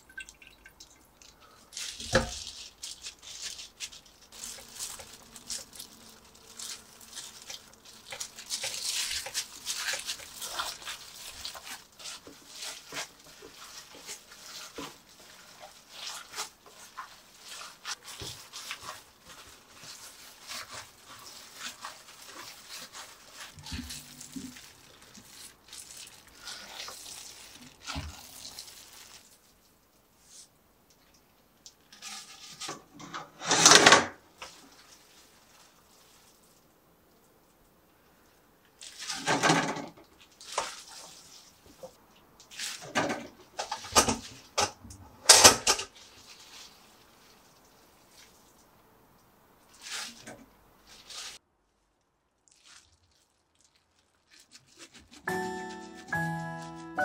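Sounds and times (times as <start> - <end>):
plastic gloves crinkling: 0.1 - 32.9, 34.2 - 57.0
wet squelching of paste: 0.2 - 29.5, 52.4 - 55.3.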